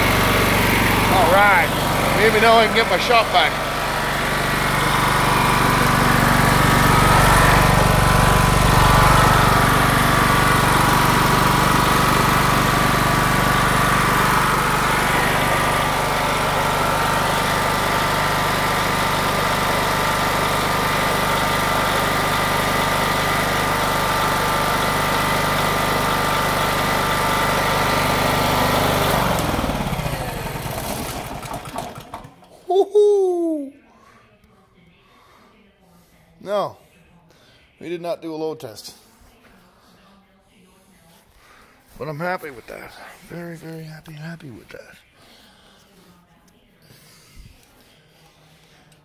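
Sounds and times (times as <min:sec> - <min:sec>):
generator engine running: 0:00.0 - 0:32.6.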